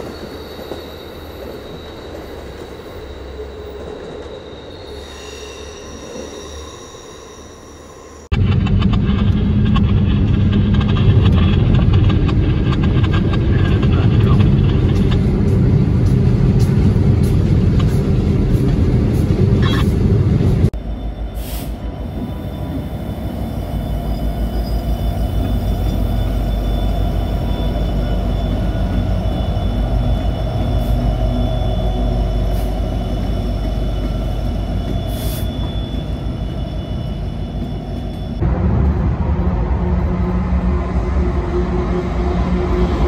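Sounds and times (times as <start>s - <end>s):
diesel locomotives rumbling: 0.0s - 43.0s
diesel locomotive throbbing: 6.7s - 43.0s.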